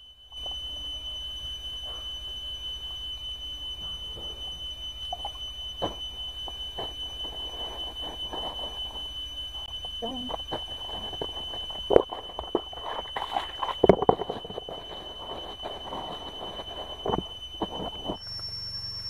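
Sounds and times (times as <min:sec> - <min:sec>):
steady high-pitched whine: 0:00.0 - 0:19.0
wet clothes rustling: 0:10.3 - 0:18.2.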